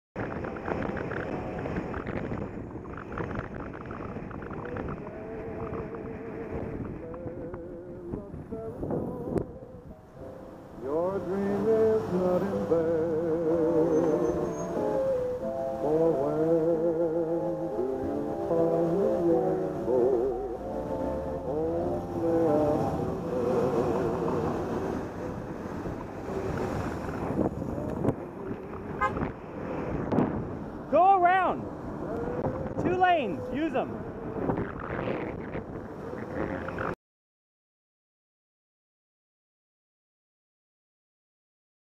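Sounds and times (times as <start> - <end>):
wind buffeting microphone: 0.2 - 10.1, 22.0 - 30.9, 31.6 - 37.0
bicycle road noise: 0.2 - 37.0
car horn toot: 29.0 - 29.3.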